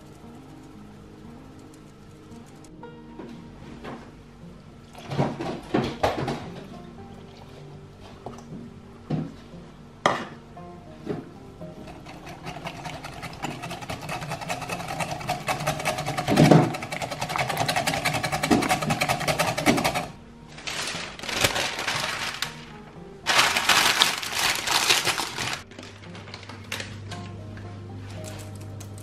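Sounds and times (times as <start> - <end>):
whisk scraping glass bowl: 11.7 - 20.2
parchment paper crinkling: 13.2 - 27.0.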